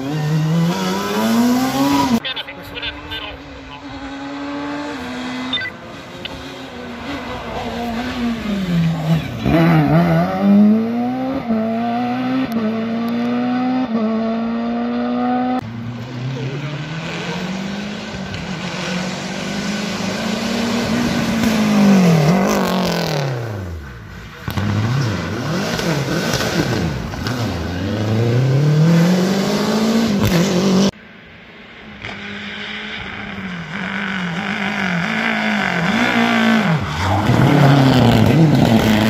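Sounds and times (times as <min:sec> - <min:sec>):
car accelerating with upshifts: 0:00.0 - 0:31.0, 0:31.8 - 0:39.0
car passing with revs climbing: 0:00.0 - 0:39.0
rally car engines at full throttle: 0:00.0 - 0:39.0.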